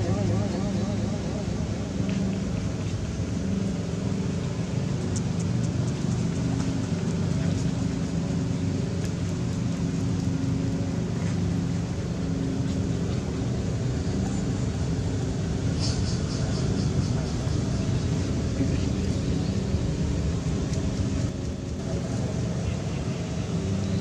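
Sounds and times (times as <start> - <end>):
low droning hum: 0.0 - 24.0.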